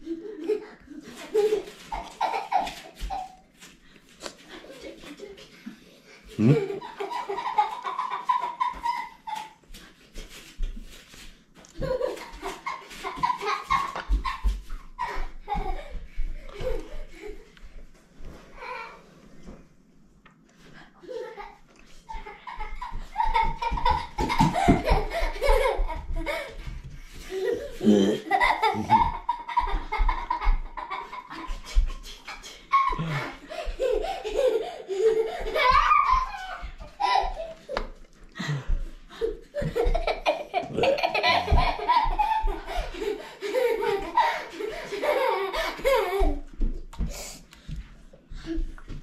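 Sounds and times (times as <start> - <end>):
person laughing: 6.2 - 9.2, 27.3 - 36.4, 38.4 - 46.4
man laughing: 6.3 - 8.4, 27.4 - 29.4, 39.8 - 42.5.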